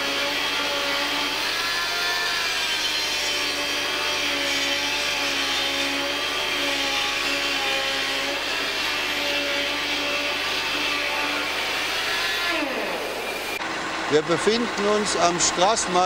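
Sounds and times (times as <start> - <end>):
power grinder grinding metal: 0.0 - 13.6.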